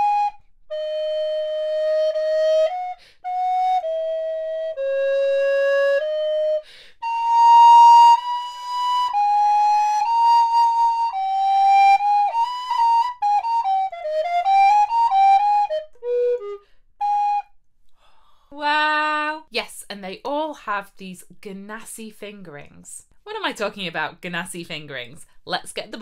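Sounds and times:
alto recorder melody: 0.0 - 17.6.

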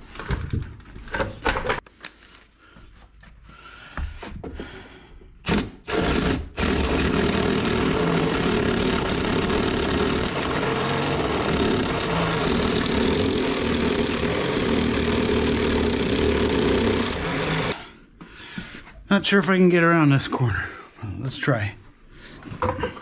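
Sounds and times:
electric drill boring wood: 5.5 - 17.8.

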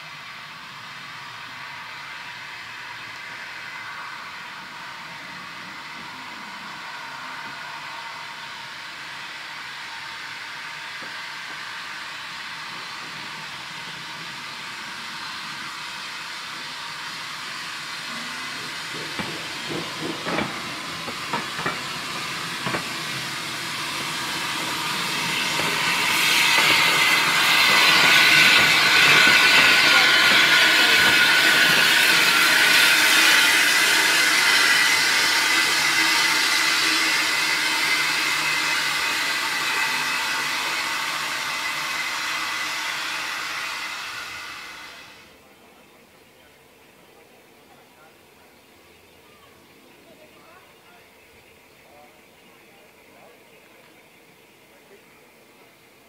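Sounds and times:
loud steam hiss: 0.0 - 56.0
train wheels knocking over rail joints: 18.1 - 42.4.

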